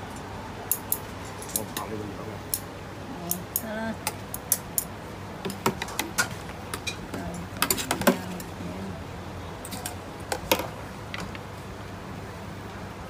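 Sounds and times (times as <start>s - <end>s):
low steady hum: 0.0s - 13.0s
utensils clinking on metal trays: 0.7s - 1.9s, 5.5s - 8.6s, 9.6s - 10.7s.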